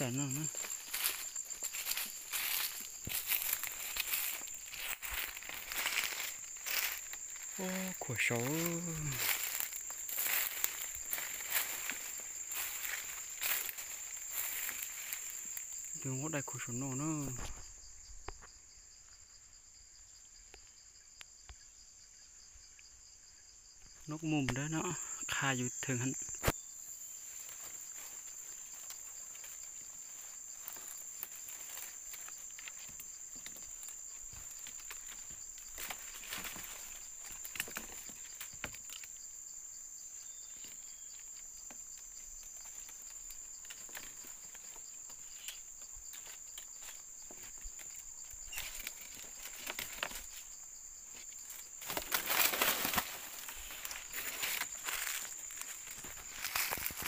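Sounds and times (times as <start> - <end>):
rustling: 0.0 - 15.9, 27.2 - 39.0, 51.2 - 57.0
insects droning: 0.0 - 57.0.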